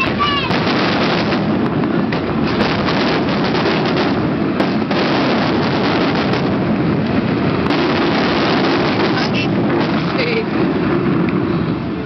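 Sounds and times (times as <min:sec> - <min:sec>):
fireworks bangs and crackles: 0:00.0 - 0:12.0.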